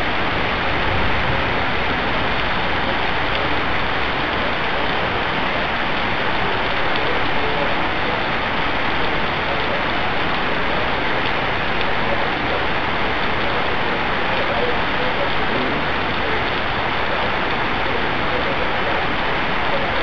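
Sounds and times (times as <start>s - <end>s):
heavy rain: 0.0s - 20.0s.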